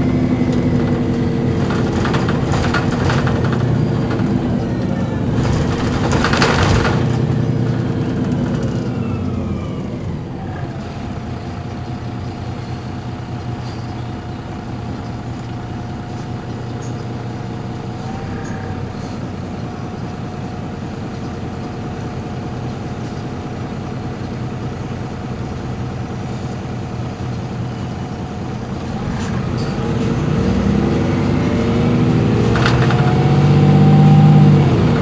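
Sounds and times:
bus diesel engine idling: 0:00.0 - 0:35.0.

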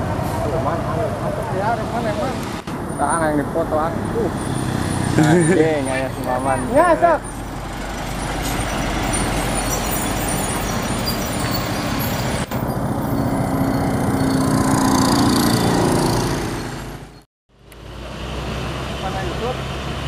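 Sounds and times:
passing traffic engine drone: 0:00.0 - 0:20.0
truck driving past: 0:00.0 - 0:20.0.

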